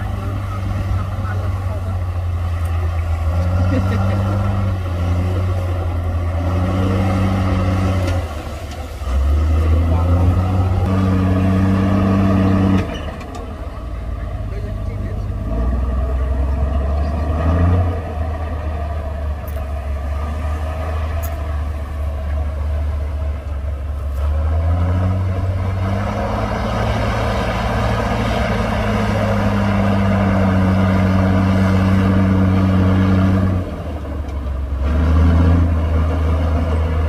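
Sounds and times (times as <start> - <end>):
bulldozer diesel engine: 0.0 - 37.0.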